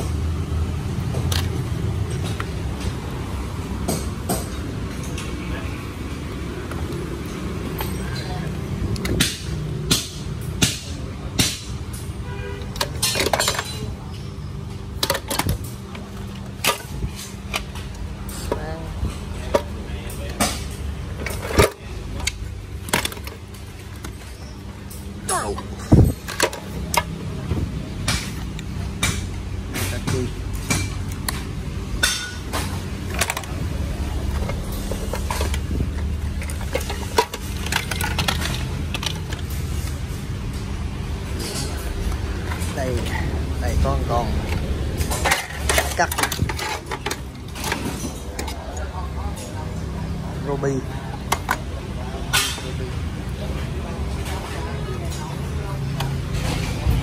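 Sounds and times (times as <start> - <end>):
power tools clattering together: 12.7 - 14.0, 19.4 - 24.3, 25.6 - 27.2, 36.4 - 39.9, 41.4 - 48.9.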